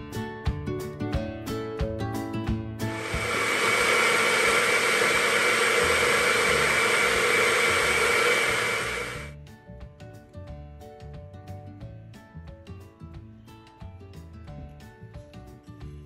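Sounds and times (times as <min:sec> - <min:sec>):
blender running: 0:02.9 - 0:09.3.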